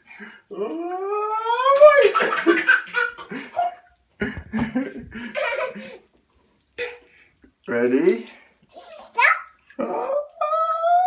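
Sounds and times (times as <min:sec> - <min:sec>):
toddler laughing: 0:04.6 - 0:06.0.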